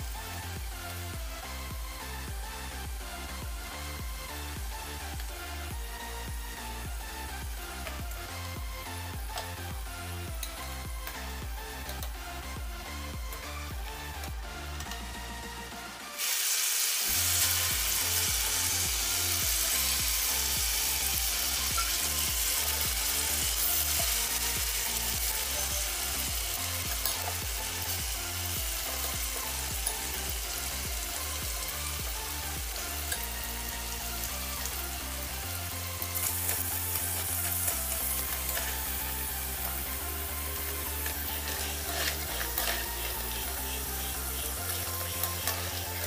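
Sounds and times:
fries sizzling in hot oil: 0.0s - 6.3s, 16.0s - 46.0s.

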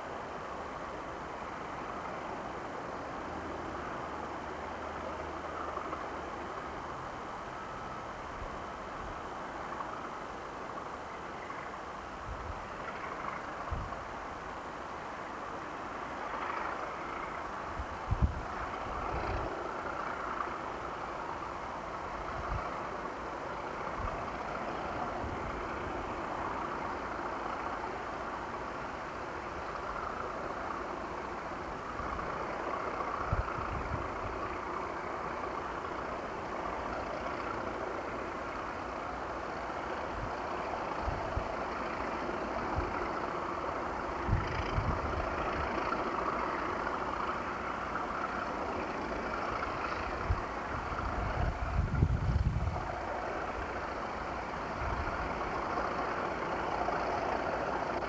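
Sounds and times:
diesel locomotive engines running: 0.0s - 58.0s.

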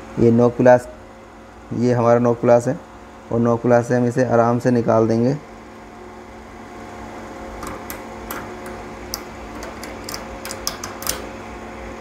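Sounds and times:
steady low hum: 0.0s - 12.0s
pliers clicking and scraping metal: 7.6s - 11.3s.

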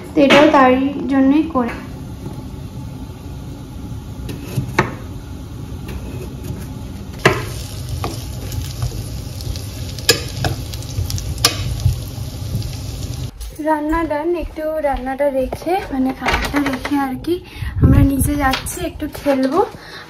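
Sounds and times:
vegetables sizzling in oil: 7.2s - 13.3s.

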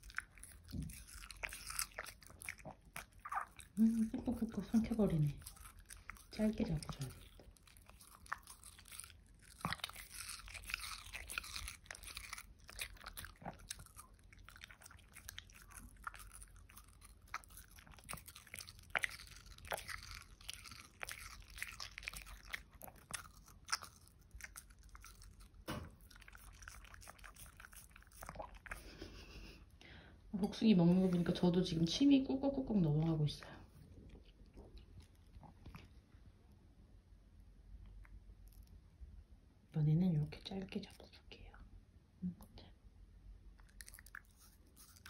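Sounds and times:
dog crunching watermelon: 0.0s - 29.2s, 43.5s - 45.0s.

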